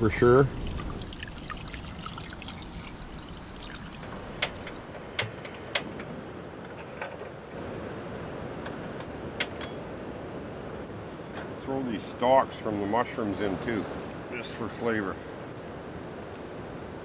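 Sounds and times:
gas burners hissing: 0:00.0 - 0:07.6.

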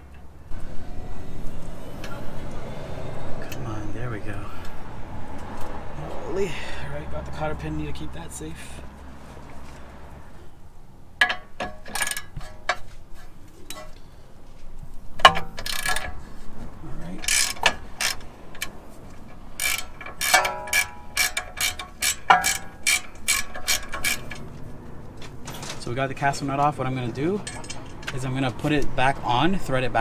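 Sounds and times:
ratchet wrench clicking: 0:11.2 - 0:12.8, 0:15.2 - 0:16.2, 0:17.2 - 0:24.5.

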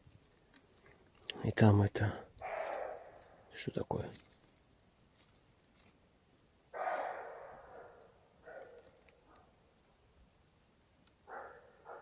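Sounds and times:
hoarse animal call: 0:02.4 - 0:03.2, 0:06.8 - 0:08.0.

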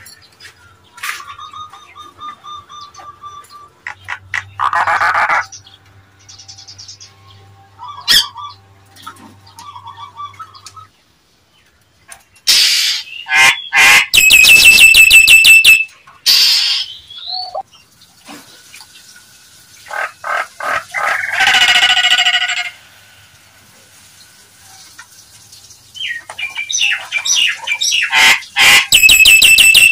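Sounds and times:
myna squawking and whistling: 0:07.8 - 0:08.6, 0:12.5 - 0:17.6, 0:26.8 - 0:29.9.

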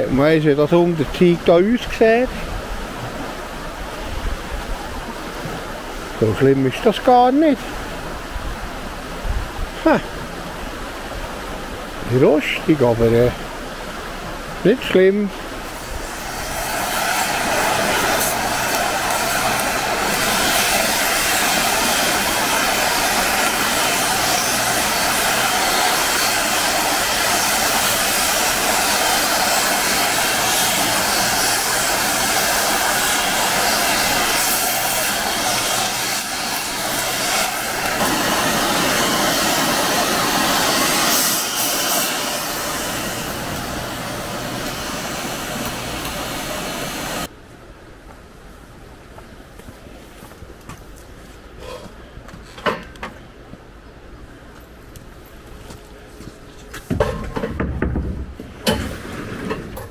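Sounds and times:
river roaring: 0:00.0 - 0:47.4
outdoor background: 0:00.0 - 0:59.9.

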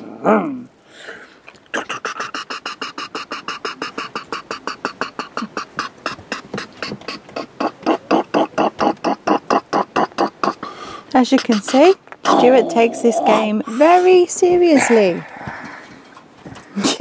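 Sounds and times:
man imitating helicopter rotor: 0:01.7 - 0:14.1.

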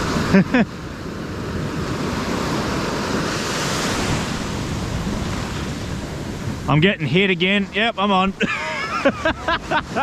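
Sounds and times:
wind buffeting microphone: 0:00.0 - 0:07.1
ocean surf breaking: 0:00.0 - 0:10.0.

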